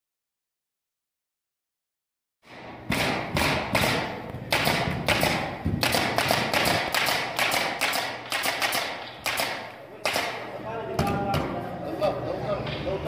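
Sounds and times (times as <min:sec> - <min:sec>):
sharp knocks: 0:02.5 - 0:10.4.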